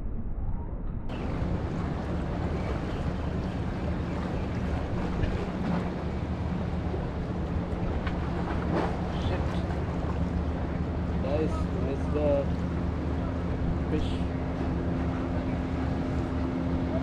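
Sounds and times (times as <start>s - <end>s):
wind on microphone: 0.0s - 11.8s
steady low hum: 0.0s - 17.0s
sea water washing against rocks: 1.1s - 12.9s.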